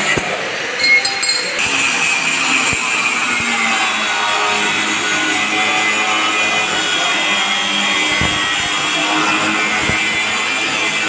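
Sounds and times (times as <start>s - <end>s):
angle grinder cutting steel: 1.0s - 11.0s.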